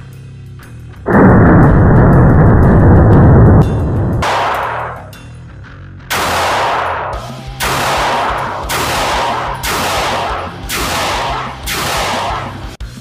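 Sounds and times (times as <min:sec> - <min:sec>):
pistol shots with echo: 0:04.2 - 0:05.1, 0:06.1 - 0:12.8.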